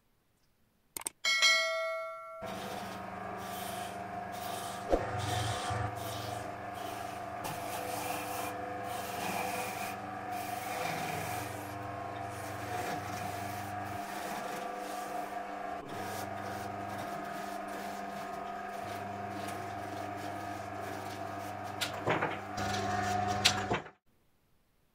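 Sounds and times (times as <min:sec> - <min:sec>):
sharp clicks: 0:00.9 - 0:01.2
turning tool scraping fruit: 0:02.4 - 0:23.6
lathe motor humming: 0:02.4 - 0:23.7.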